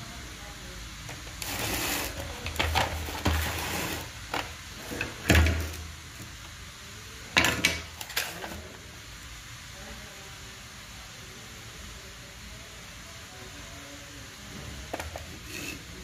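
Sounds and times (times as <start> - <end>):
drill parts knocking and rattling: 1.4 - 5.8.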